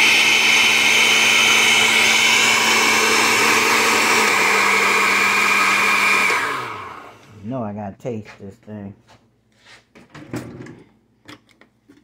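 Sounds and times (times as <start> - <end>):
blender motor whirring: 0.0 - 7.3.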